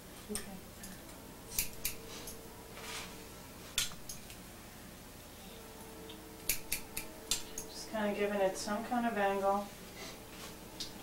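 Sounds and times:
scissors snipping hair: 0:00.3 - 0:02.4, 0:06.0 - 0:07.8.

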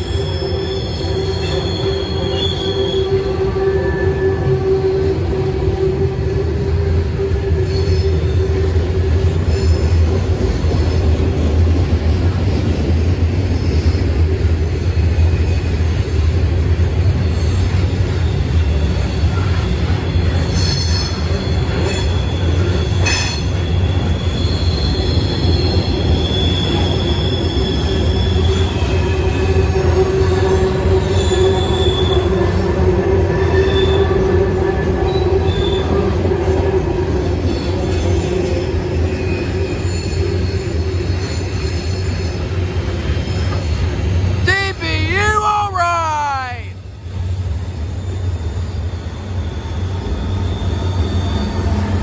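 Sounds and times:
higher-pitched wheel squeals: 0:00.0 - 0:05.0
train wheel squeal: 0:00.0 - 0:11.0, 0:13.4 - 0:44.3, 0:47.0 - 0:52.0.

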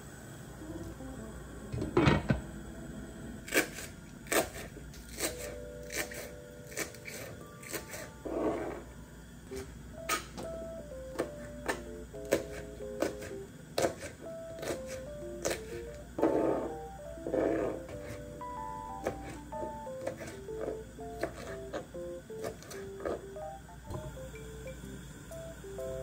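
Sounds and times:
soft background music: 0:00.5 - 0:26.0
knife chopping on cutting board: 0:11.2 - 0:15.8, 0:20.0 - 0:21.8.

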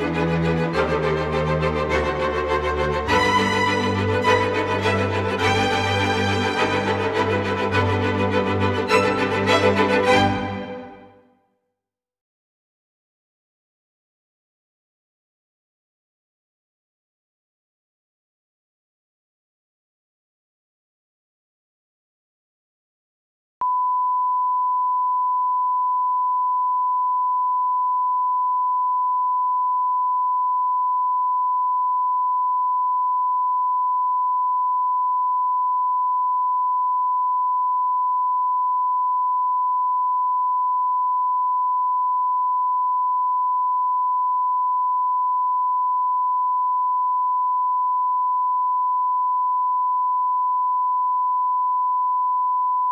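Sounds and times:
pure reference test tone: 0:23.6 - 0:52.9.

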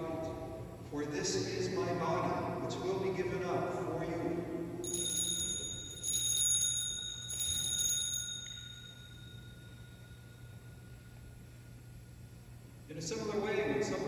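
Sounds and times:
altar bells chiming: 0:04.8 - 0:11.5.

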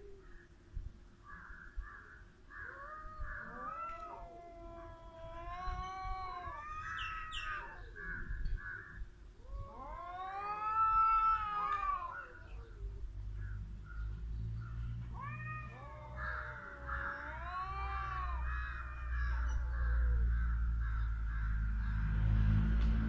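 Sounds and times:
cats yowling: 0:02.6 - 0:08.4, 0:09.4 - 0:13.2, 0:14.6 - 0:21.8.

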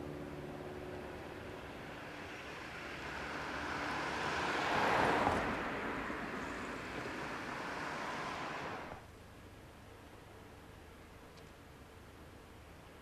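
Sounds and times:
electric train passing: 0:00.0 - 0:09.0.

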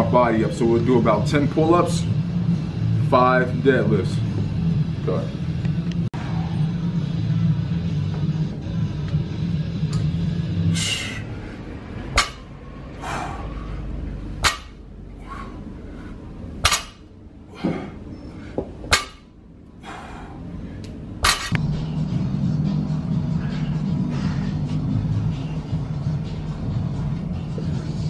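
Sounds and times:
hard breathing: 0:10.7 - 0:12.0, 0:12.8 - 0:14.3, 0:15.0 - 0:16.5, 0:17.4 - 0:18.9, 0:19.7 - 0:21.1, 0:23.2 - 0:25.7.

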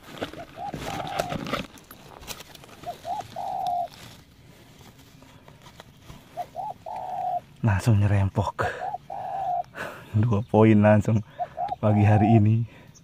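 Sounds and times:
dove cooing: 0:00.0 - 0:01.7, 0:02.6 - 0:04.2, 0:06.0 - 0:07.9, 0:08.5 - 0:10.0, 0:11.1 - 0:12.8
handling rustle: 0:00.0 - 0:07.0.

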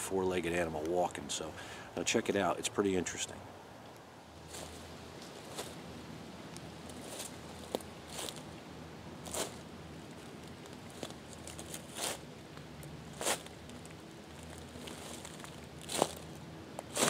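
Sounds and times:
footsteps crunching dry leaves: 0:04.4 - 0:05.8, 0:06.9 - 0:08.5, 0:09.2 - 0:12.2, 0:13.1 - 0:17.0.

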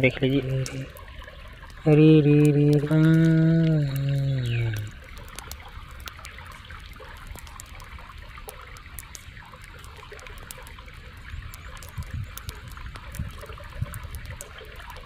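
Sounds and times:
man's drawn-out voice: 0:00.0 - 0:00.9, 0:01.8 - 0:04.9
river trickling over rocks: 0:00.0 - 0:15.0
small ticks: 0:00.6 - 0:15.0.

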